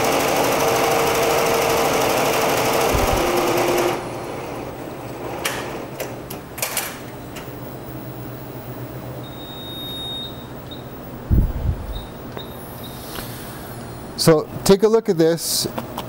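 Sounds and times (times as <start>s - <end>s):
embroidery machine chatter: 0.0s - 4.2s.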